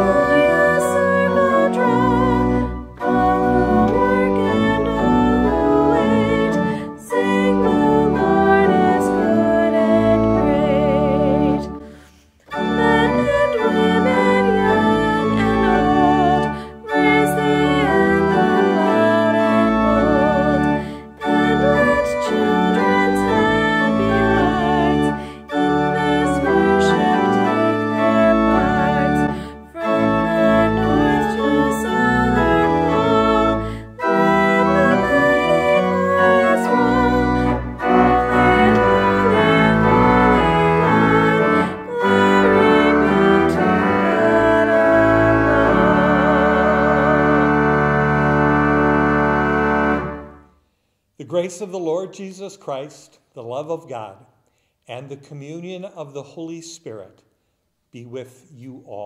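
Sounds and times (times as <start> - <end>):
woman singing: 0.0 - 11.8, 12.5 - 47.9
pipe organ playing a hymn: 0.0 - 50.5.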